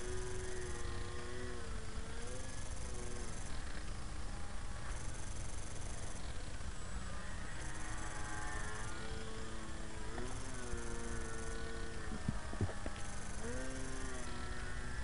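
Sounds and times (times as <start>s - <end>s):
model airplane motor whining: 0.0s - 15.0s.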